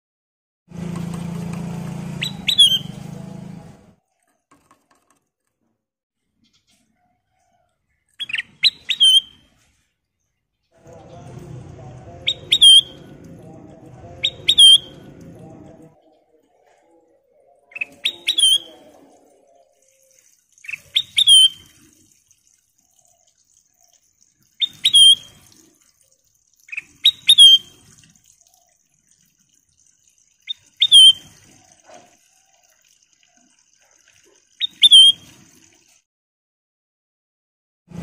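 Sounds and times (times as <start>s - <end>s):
bulbul singing: 2.2s - 3.1s, 8.2s - 9.5s, 10.8s - 21.8s, 23.0s - 25.4s, 26.5s - 27.9s, 30.4s - 31.4s, 34.6s - 35.3s.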